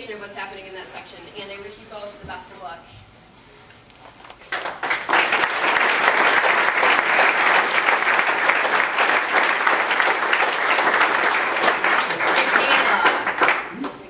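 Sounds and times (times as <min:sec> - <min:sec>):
crowd applauding: 0:04.4 - 0:14.0.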